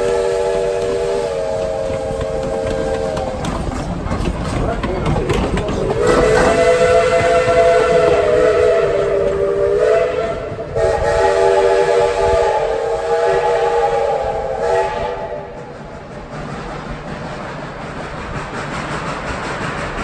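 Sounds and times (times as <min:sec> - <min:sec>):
steam locomotive chime whistle: 0:00.0 - 0:03.4, 0:06.0 - 0:15.6.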